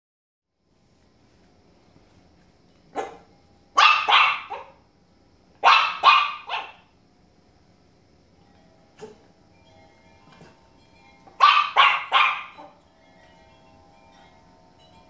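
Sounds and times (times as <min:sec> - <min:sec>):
small dog barking: 0:02.9 - 0:04.8, 0:05.6 - 0:06.9, 0:11.4 - 0:12.7.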